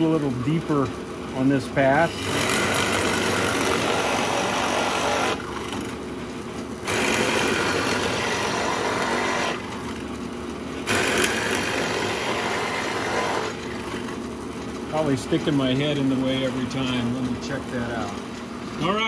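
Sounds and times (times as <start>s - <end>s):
drill press motor drone: 2.0s - 6.0s, 6.8s - 10.1s, 10.8s - 14.2s
drill bit cutting wood: 2.1s - 5.9s, 6.8s - 9.9s, 10.9s - 14.0s.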